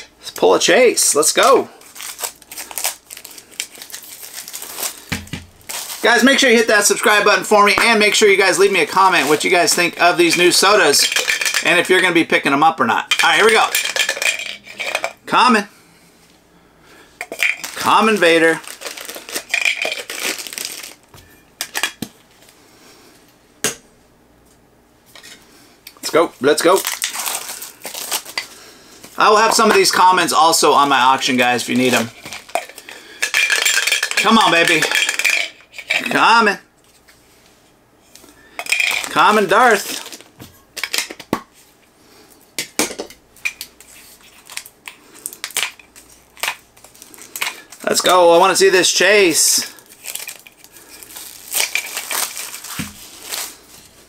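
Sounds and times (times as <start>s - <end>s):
plastic packaging crinkling: 1.7s - 12.1s, 17.3s - 21.1s, 26.5s - 35.4s, 38.7s - 41.0s, 43.7s - 48.6s, 49.6s - 54.0s
small items clicking and knocking: 10.3s - 11.8s, 13.1s - 15.2s, 17.2s - 21.0s.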